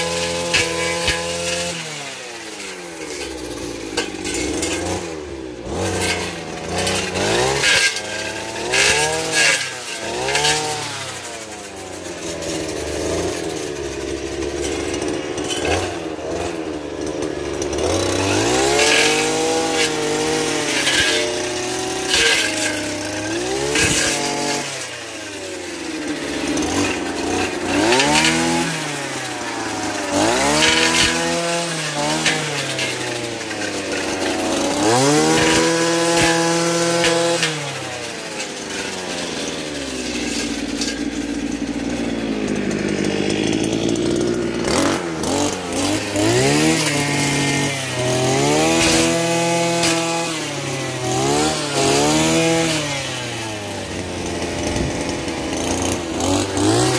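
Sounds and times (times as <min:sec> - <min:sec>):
brush cutter engine revving: 0:00.0 - 0:56.9.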